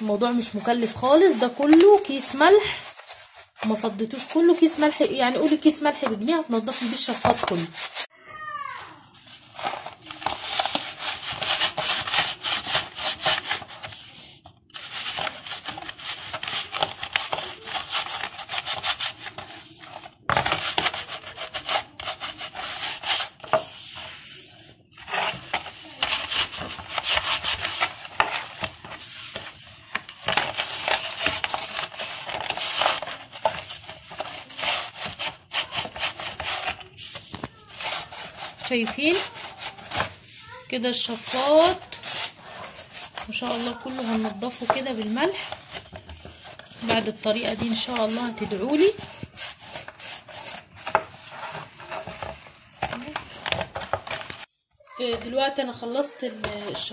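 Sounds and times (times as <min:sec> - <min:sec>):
hands scrubbing salt on metal: 0:00.1 - 0:08.1, 0:20.4 - 0:24.5, 0:30.4 - 0:51.9.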